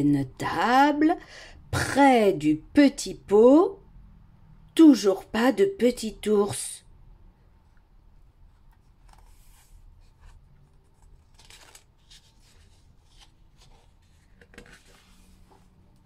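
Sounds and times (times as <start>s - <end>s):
paper pages rustling: 8.6s - 15.8s.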